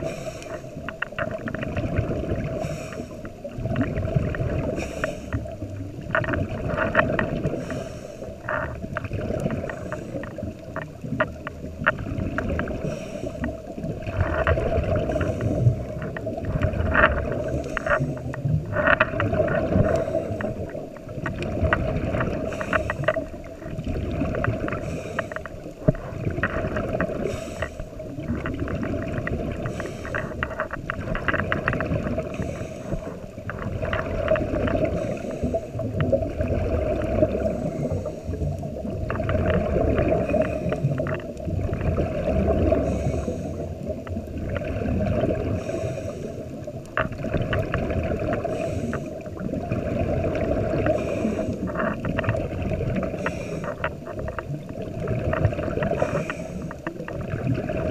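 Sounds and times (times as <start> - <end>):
diver breathing through regulator: 0.0 - 1.0, 2.4 - 3.4, 4.6 - 5.6, 7.1 - 8.8, 9.4 - 10.6, 12.5 - 16.2, 17.1 - 21.0, 22.2 - 23.7, 24.5 - 31.3, 32.0 - 33.8, 34.7 - 36.1, 37.2 - 38.7, 40.1 - 41.3, 42.6 - 43.9, 45.3 - 46.7, 48.2 - 49.5, 50.3 - 52.1, 53.0 - 54.3, 55.6 - 57.1
exhaled bubbles gurgling: 0.0 - 57.9.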